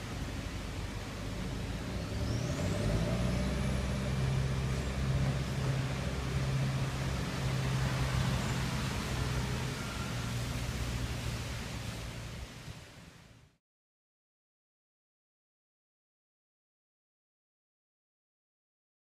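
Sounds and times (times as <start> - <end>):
vehicle engine running: 0.0 - 13.3.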